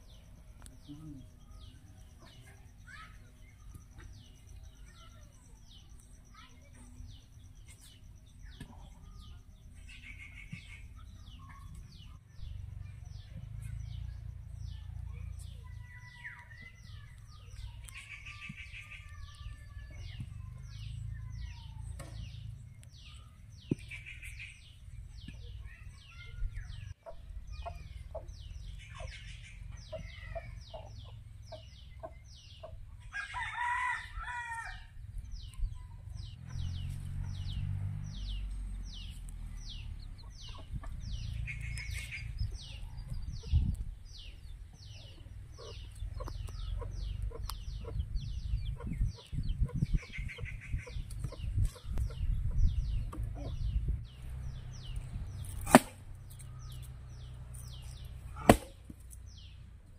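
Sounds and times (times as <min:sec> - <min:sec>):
rooster crowing: 0:33.2 - 0:34.9
axe chopping into log: 0:55.4 - 0:56.0, 0:58.4 - 0:59.0.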